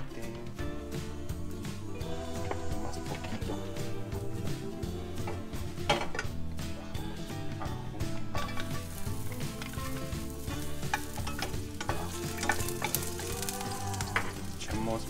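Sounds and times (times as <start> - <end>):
garlic sizzling in hot oil: 8.0 - 15.0
wooden spatula stirring: 8.3 - 15.0.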